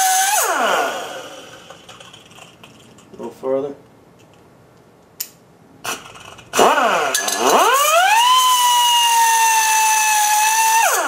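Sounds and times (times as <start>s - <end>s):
die grinder whining: 0.0s - 1.9s, 5.9s - 11.0s
cutoff disc cutting metal tube: 5.9s - 11.0s.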